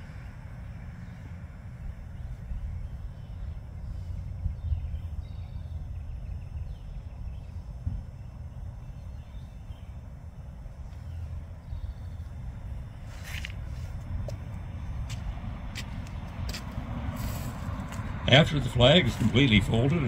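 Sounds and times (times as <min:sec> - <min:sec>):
faint birds chirping: 0:00.0 - 0:16.4.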